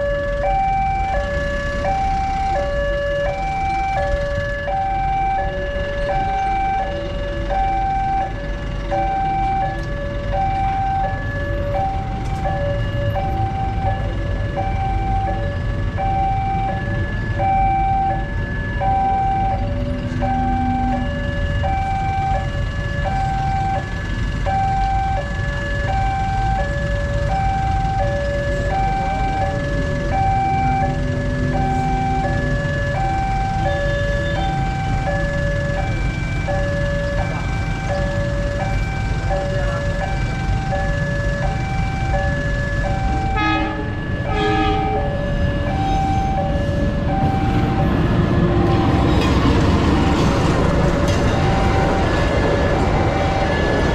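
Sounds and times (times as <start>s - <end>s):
level crossing two-tone alarm: 0.0s - 53.9s
road traffic rumble: 0.0s - 53.9s.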